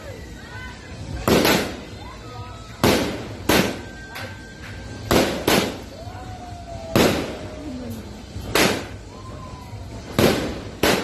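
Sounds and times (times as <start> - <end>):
fireworks bangs: 1.1 - 6.2, 6.8 - 7.6, 8.3 - 9.1, 9.8 - 11.0.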